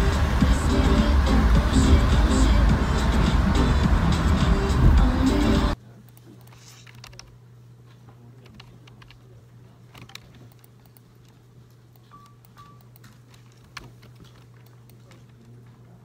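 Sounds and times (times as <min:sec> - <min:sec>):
low hum: 0:00.0 - 0:05.8
short beeps: 0:12.1 - 0:12.9.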